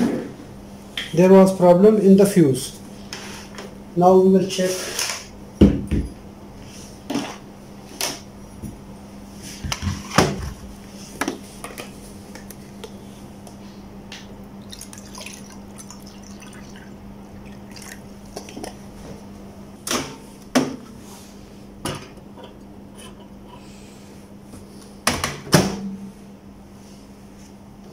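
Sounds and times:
low steady hum: 0:00.0 - 0:27.9
water pouring into a mug: 0:14.6 - 0:18.6.

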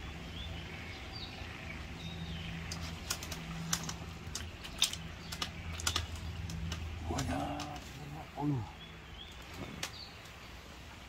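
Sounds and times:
sharp irregular clicks: 0:02.7 - 0:07.9.

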